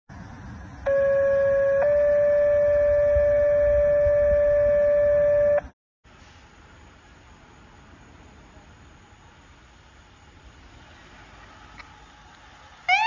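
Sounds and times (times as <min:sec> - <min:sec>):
two-tone paging tone: 0:00.9 - 0:05.7.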